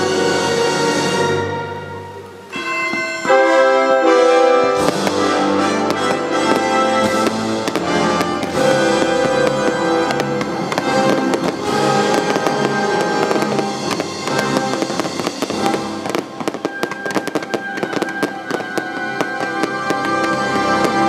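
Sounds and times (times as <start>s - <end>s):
loud show music: 4.0s - 21.0s
fireworks popping and crackling: 4.7s - 21.0s.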